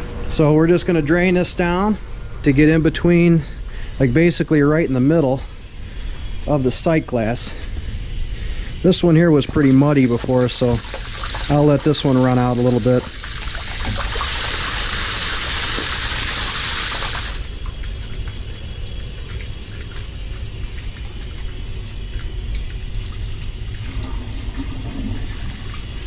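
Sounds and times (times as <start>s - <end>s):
water rushing from drain pipe: 8.9s - 26.0s
water splashing on floor: 9.4s - 26.0s.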